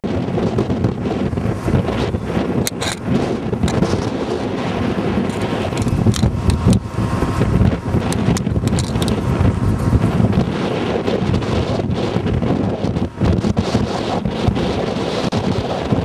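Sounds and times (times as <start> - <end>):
wind buffeting microphone: 0.0 - 16.0
short crackles: 1.9 - 6.8, 8.0 - 11.7.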